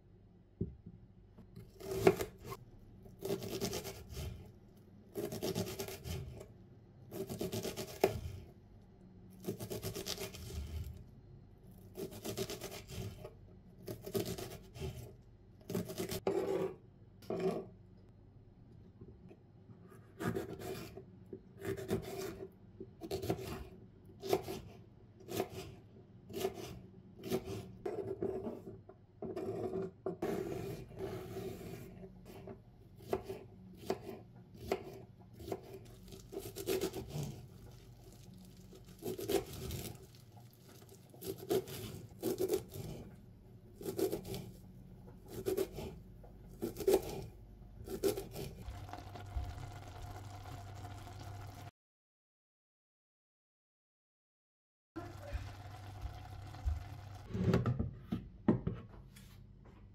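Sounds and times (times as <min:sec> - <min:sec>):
knife chopping on wooden board: 0:01.6 - 0:02.6, 0:26.3 - 0:35.8.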